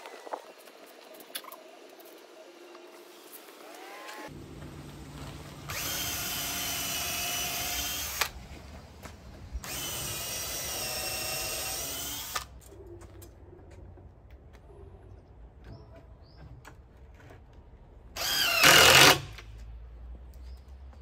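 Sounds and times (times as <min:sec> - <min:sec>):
cordless drill whining: 0:05.7 - 0:08.3, 0:09.6 - 0:12.5, 0:18.2 - 0:19.3.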